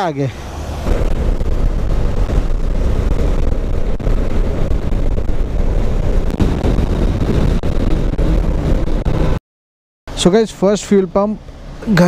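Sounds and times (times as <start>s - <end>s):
motorcycle engine and road noise: 0.0s - 9.4s
wind buffeting: 0.3s - 9.4s.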